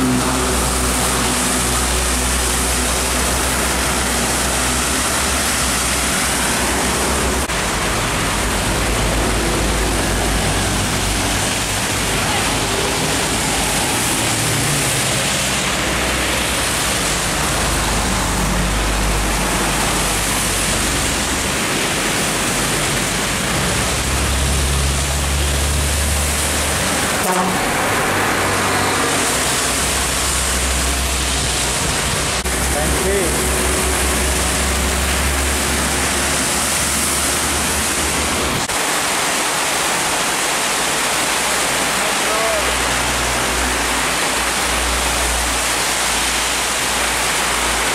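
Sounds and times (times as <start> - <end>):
rain and tyre spray hiss: 0.0 - 47.9
truck engines droning: 0.0 - 47.9.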